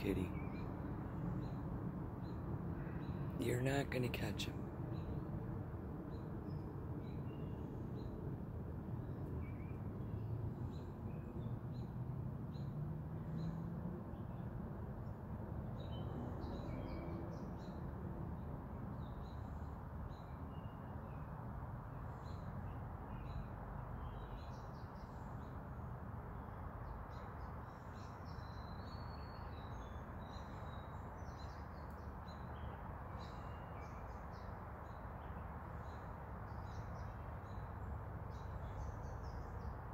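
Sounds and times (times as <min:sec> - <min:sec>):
small birds chirping: 0:26.3 - 0:39.9.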